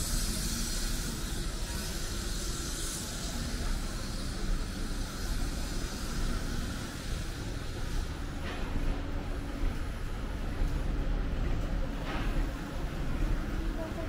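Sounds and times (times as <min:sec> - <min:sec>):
hiss: 0:00.0 - 0:09.9.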